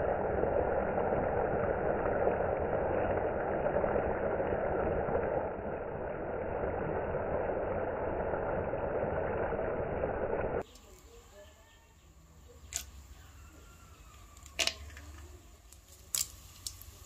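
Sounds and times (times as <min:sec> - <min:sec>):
curry bubbling in pan: 0:00.0 - 0:10.7, 0:14.0 - 0:17.0.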